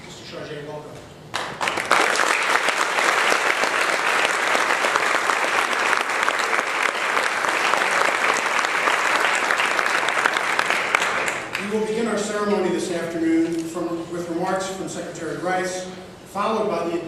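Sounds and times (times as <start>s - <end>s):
audience applauding: 1.3s - 11.7s.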